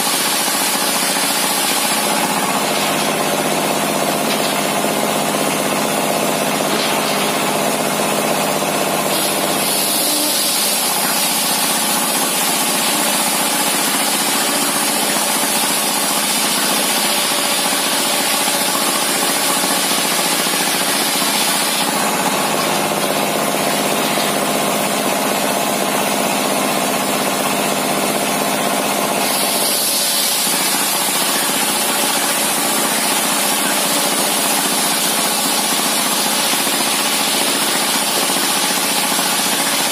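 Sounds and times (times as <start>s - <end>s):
saw blade cutting wood: 9.1s - 18.0s.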